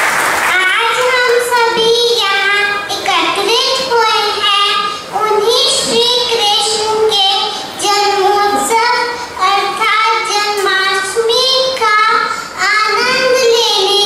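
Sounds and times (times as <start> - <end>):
girl singing into microphone: 0.5 - 14.0
breaths: 7.5 - 7.8, 9.1 - 9.4, 12.3 - 12.6.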